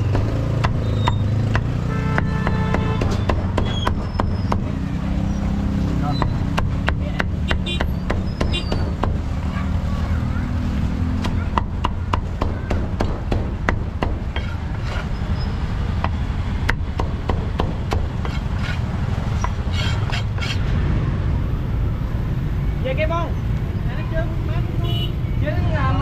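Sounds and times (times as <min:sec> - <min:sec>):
cleaver chopping on wooden block: 0:00.2 - 0:04.8, 0:06.2 - 0:09.2, 0:11.1 - 0:15.0, 0:16.0 - 0:20.6.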